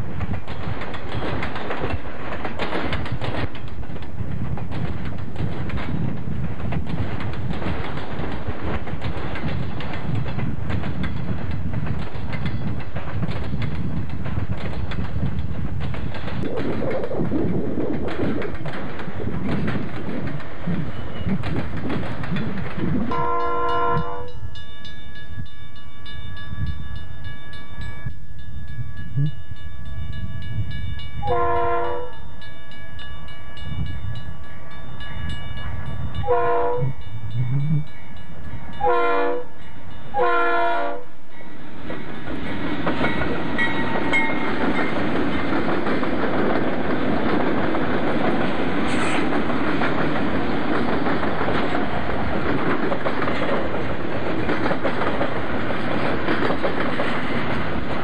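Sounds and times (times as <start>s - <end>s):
diesel locomotive engines rumbling: 0.0s - 25.5s, 27.8s - 58.0s
train wheels on rail: 0.0s - 58.0s
air horn blasts: 31.2s - 32.1s, 36.3s - 37.0s, 38.8s - 39.4s, 40.2s - 41.0s.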